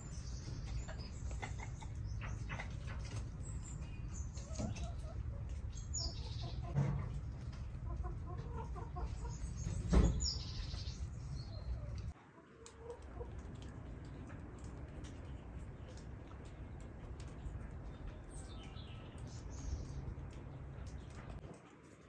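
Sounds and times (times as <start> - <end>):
low outdoor rumble: 0.0 - 12.2, 12.8 - 21.5
hens clucking: 0.4 - 13.8.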